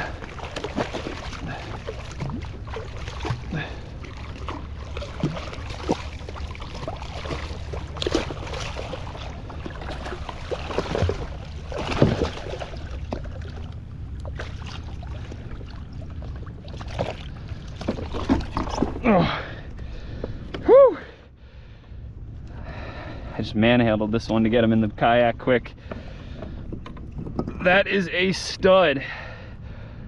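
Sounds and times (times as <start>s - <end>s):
water noise: 0.0s - 23.3s
wind: 0.0s - 30.0s.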